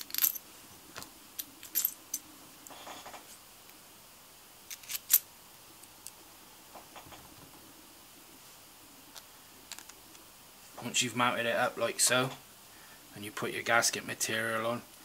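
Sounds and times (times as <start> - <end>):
small metal parts clicking: 0.0 - 0.4, 4.7 - 5.2.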